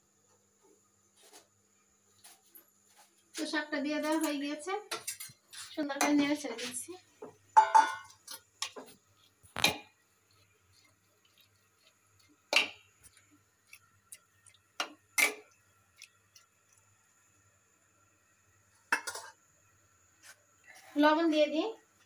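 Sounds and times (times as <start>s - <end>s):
metal spoon knocking against pot: 7.6s - 8.1s.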